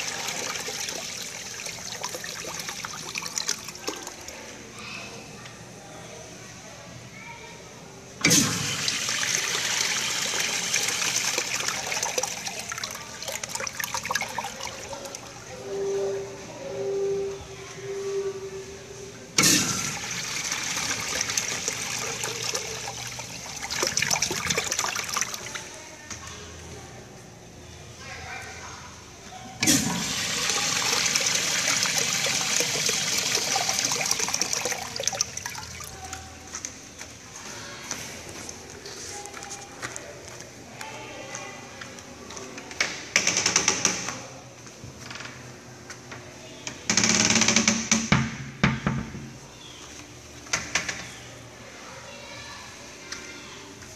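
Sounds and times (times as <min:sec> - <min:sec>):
urinal flushing: 0:00.0 - 0:04.5, 0:08.2 - 0:15.5, 0:19.4 - 0:25.8, 0:29.6 - 0:36.5
water trickling: 0:00.0 - 0:04.5, 0:08.6 - 0:15.5, 0:19.8 - 0:25.8, 0:29.6 - 0:36.5.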